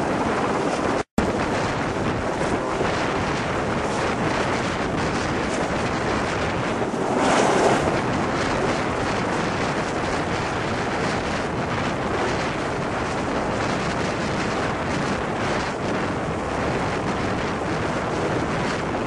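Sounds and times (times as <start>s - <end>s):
helicopter rotor hovering: 0.0s - 15.1s
wind buffeting microphone: 0.0s - 19.0s.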